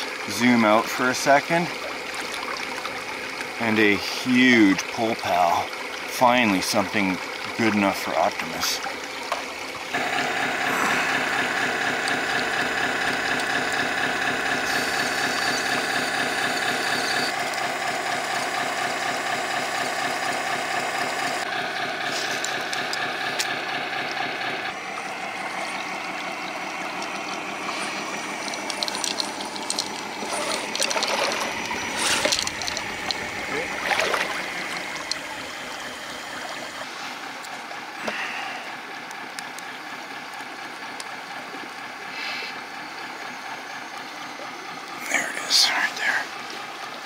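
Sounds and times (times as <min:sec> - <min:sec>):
creek water running: 0:00.0 - 0:47.0
toy truck mechanical whirring: 0:09.9 - 0:24.2, 0:25.5 - 0:33.8.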